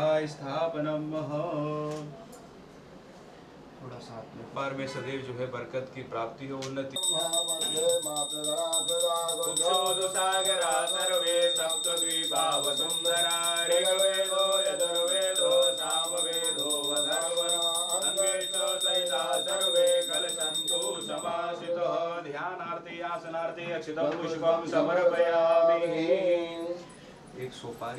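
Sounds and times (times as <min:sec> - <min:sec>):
hand bell ringing: 0:07.0 - 0:21.6.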